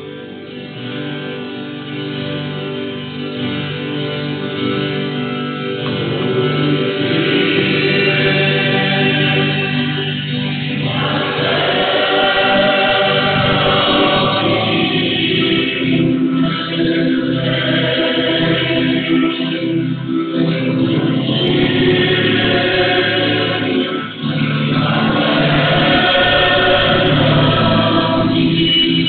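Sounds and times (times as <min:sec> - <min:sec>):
guitar accompaniment: 0:00.0 - 0:29.0
choir singing a hymn: 0:05.8 - 0:29.0.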